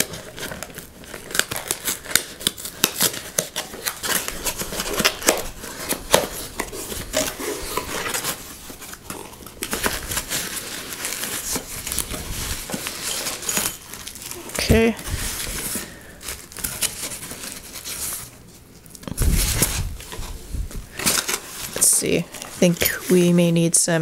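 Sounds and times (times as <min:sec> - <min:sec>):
packing tape tearing: 0:00.0 - 0:23.1
foam packing rustling: 0:00.0 - 0:23.4
cardboard flaps scraping: 0:19.1 - 0:21.9.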